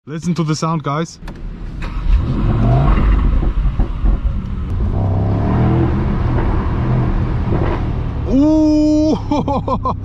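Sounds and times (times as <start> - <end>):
car engine revving: 1.5 - 8.9.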